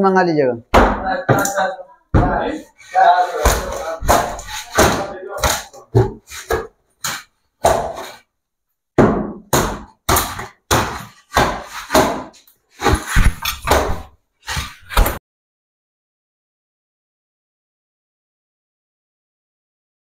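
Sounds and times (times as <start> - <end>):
heavy blows breaking wood: 3.4 - 6.2.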